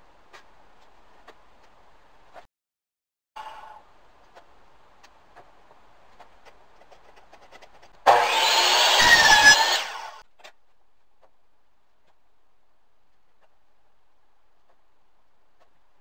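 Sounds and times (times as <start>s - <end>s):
miter saw cutting: 8.0s - 10.2s.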